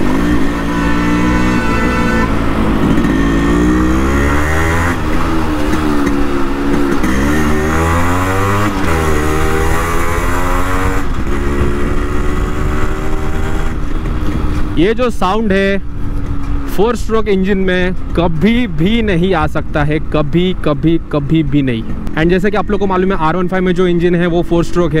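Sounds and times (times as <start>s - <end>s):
motorcycle engine shifting gears: 0.0s - 19.0s.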